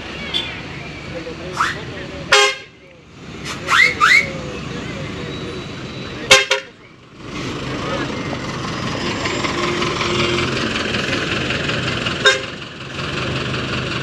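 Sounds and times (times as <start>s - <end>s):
bus diesel engine running: 0.0s - 14.0s
bus horn toot: 1.6s - 2.8s, 6.2s - 6.8s, 9.3s - 10.6s, 12.2s - 12.6s.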